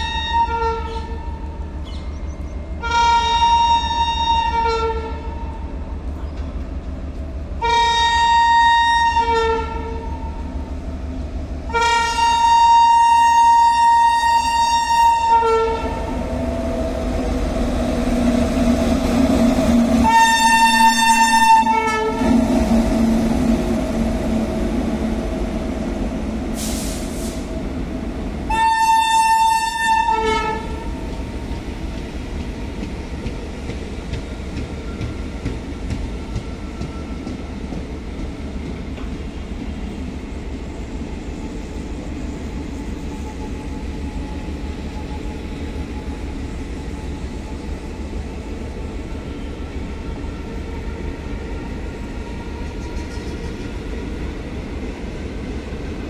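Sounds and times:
locomotive horn blasts: 0:00.0 - 0:01.3, 0:02.8 - 0:05.6, 0:07.6 - 0:10.2, 0:11.7 - 0:16.1, 0:20.0 - 0:22.4, 0:28.5 - 0:30.9
train coaches rolling past: 0:00.0 - 0:56.0.

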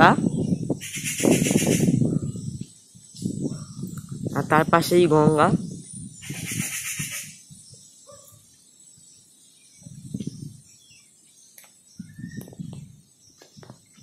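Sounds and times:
wind buffeting microphone: 0:00.0 - 0:08.2, 0:08.9 - 0:11.2, 0:11.8 - 0:14.0
faint bird chirps: 0:05.6 - 0:14.0.

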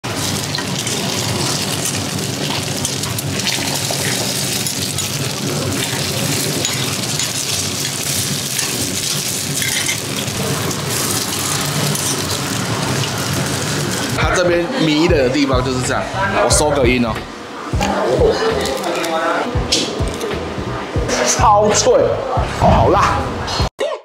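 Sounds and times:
food sizzling on a griddle: 0:00.0 - 0:14.2.

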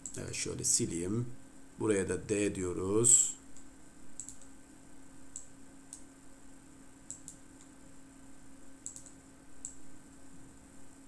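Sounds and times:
computer mouse clicks: 0:00.0 - 0:00.2, 0:03.5 - 0:04.6, 0:05.3 - 0:06.1, 0:07.1 - 0:07.7, 0:08.8 - 0:09.8
faint steady hum: 0:00.0 - 0:11.0.

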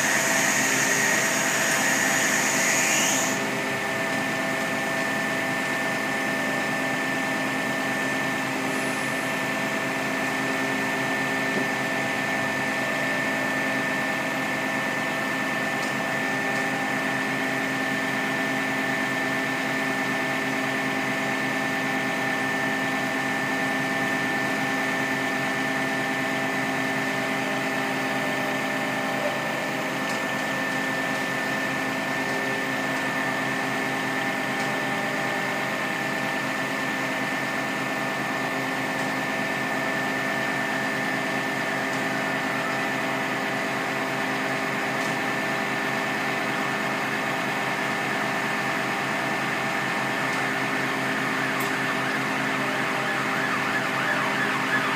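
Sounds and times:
high whine: 0:00.0 - 0:04.4, 0:48.6 - 0:54.9
engine and hydraulic pump drone: 0:00.0 - 0:54.9.

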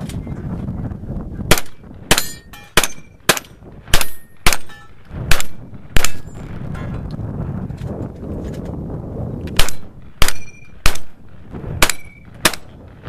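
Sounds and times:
gunshots: 0:01.5 - 0:06.4, 0:09.6 - 0:11.2, 0:11.8 - 0:12.8
metallic ring of steel targets: 0:01.5 - 0:07.1, 0:09.6 - 0:11.0, 0:11.8 - 0:12.7.

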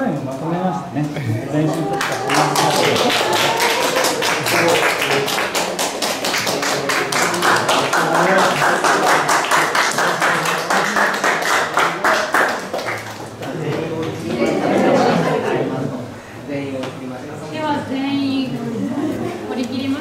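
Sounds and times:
group applauding: 0:01.6 - 0:14.7.

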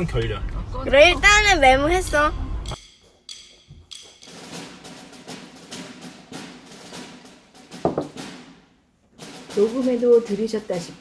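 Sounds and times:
music with tapping percussion beat: 0:02.6 - 0:08.6.

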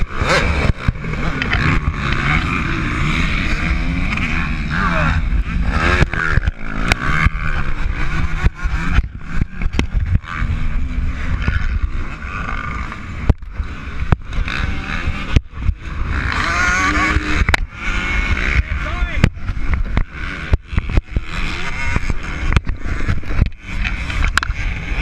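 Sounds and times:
sharp clicks and knocks: 0:00.0 - 0:02.3, 0:08.2 - 0:10.3, 0:11.3 - 0:14.5, 0:17.3 - 0:17.7, 0:19.2 - 0:24.7
motocross engine revving: 0:00.0 - 0:25.0.

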